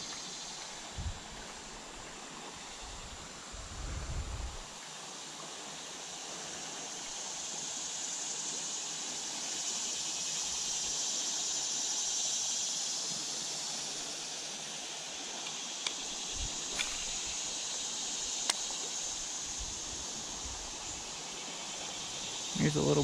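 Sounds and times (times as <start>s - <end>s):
river water rushing: 0.0s - 3.6s.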